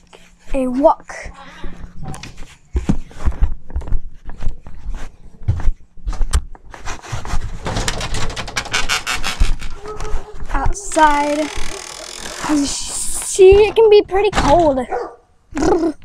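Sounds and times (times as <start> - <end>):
knocks and bumps on microphone: 13.4 - 14.8.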